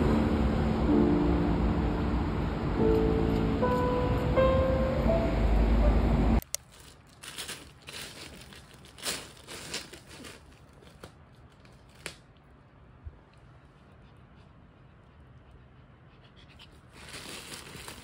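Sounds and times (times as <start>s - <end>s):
background music: 0.0s - 6.4s
plastic crinkling: 6.4s - 12.4s, 17.0s - 18.0s.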